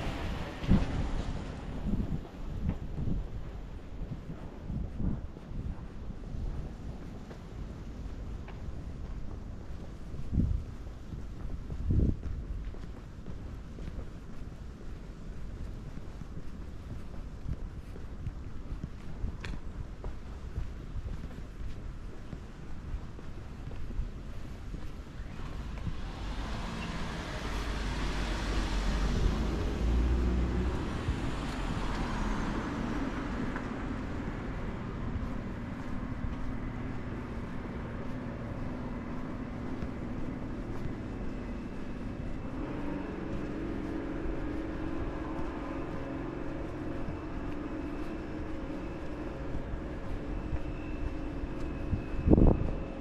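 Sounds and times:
steady engine hum: 0.0 - 53.0
car passing close by: 25.4 - 35.1.

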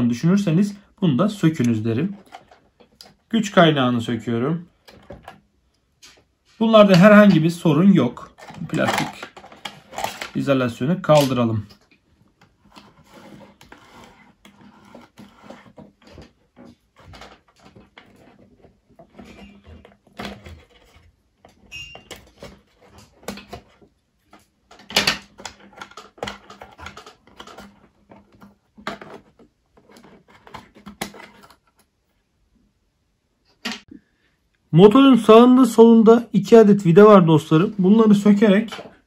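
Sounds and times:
clicks and rattles of plastic housing: 8.3 - 10.4, 19.0 - 31.8.

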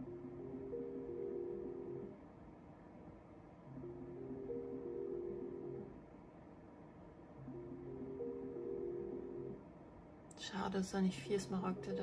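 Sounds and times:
slot machine electronic tune: 11.2 - 12.0.

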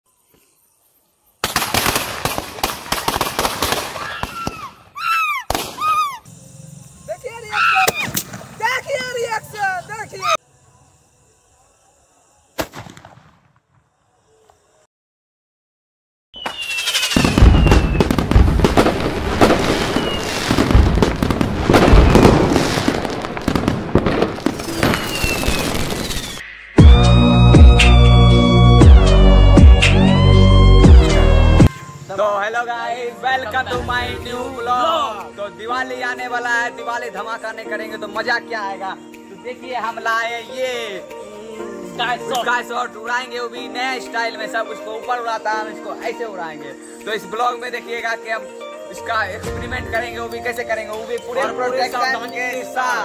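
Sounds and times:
firecrackers banging: 1.4 - 4.7, 16.4 - 26.4
whistling rockets: 1.4 - 6.7, 7.7 - 8.6, 12.5 - 14.0, 16.4 - 26.8
descending whistling tones: 16.4 - 18.2, 19.8 - 20.4, 24.6 - 28.4.

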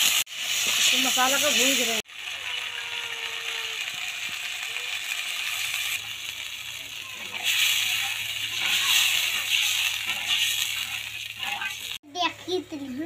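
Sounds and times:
paste sizzling in a wok: 0.0 - 12.0
spatula scraping pan: 7.0 - 12.0.

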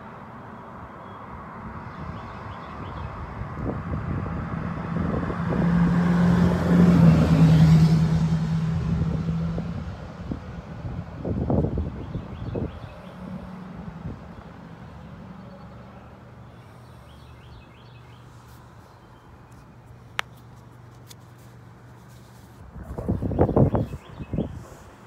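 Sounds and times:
low traffic hum: 0.0 - 25.0
wind buffeting microphone: 1.7 - 7.2, 8.7 - 14.6, 22.6 - 25.0
car passing: 2.5 - 18.2.

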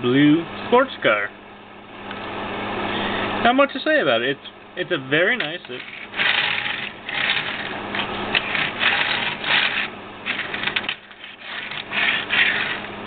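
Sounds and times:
toy car wheels rattling on wood: 5.7 - 12.9.

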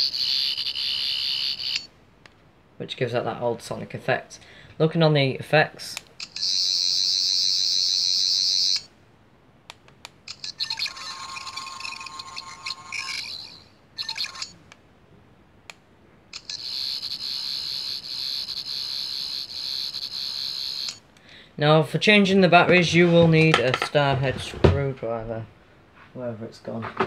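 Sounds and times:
toy electronic warbling buzz: 0.0 - 1.9, 6.2 - 8.9, 10.3 - 14.6, 16.4 - 21.0.

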